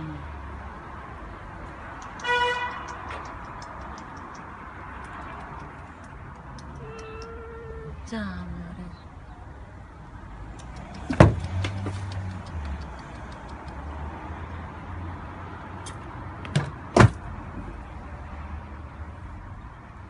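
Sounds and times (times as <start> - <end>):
sharp knocks: 11.0 - 12.0, 16.5 - 17.2.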